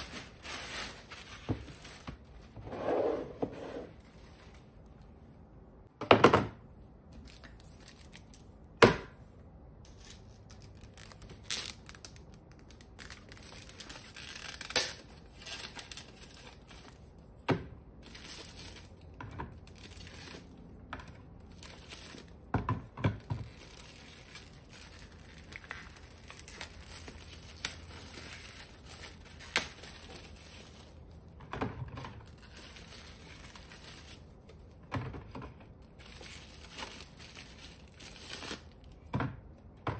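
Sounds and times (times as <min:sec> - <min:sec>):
plastic packaging crinkling: 0:00.0 - 0:02.5, 0:09.9 - 0:17.1, 0:21.4 - 0:22.4, 0:23.4 - 0:31.2, 0:32.2 - 0:34.7, 0:35.8 - 0:39.0
items knocking on a shelf: 0:06.0 - 0:06.6
packaging tearing: 0:10.0 - 0:16.8, 0:36.0 - 0:38.8.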